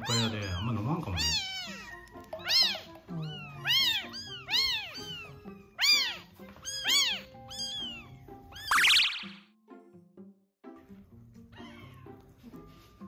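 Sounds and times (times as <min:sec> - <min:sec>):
kittens mewing: 0:00.0 - 0:09.3, 0:11.5 - 0:12.3
kitten squalling: 0:00.0 - 0:09.4.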